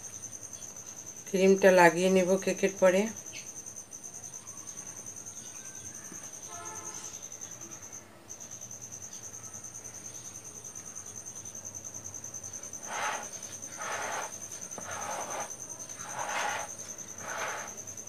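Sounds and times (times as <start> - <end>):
cricket trilling: 0.0 - 18.0
spatula scraping cream on cake: 12.6 - 17.8.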